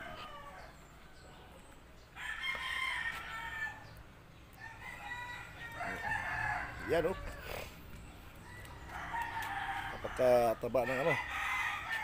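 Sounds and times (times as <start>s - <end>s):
rooster crowing: 2.2s - 3.8s, 4.6s - 7.6s, 8.4s - 12.0s.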